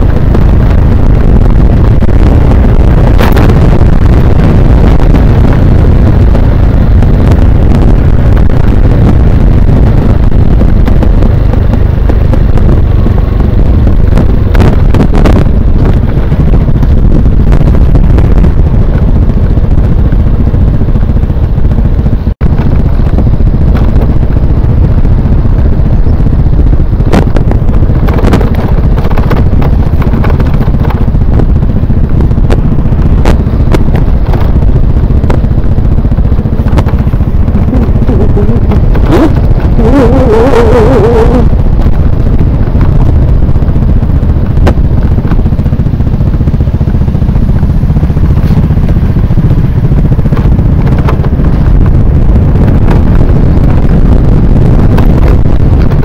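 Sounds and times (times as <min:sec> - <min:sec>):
scooter engine running: 0:00.0 - 0:56.0
wind on microphone: 0:00.0 - 0:56.0
wavering higher pitch: 0:37.6 - 0:41.5.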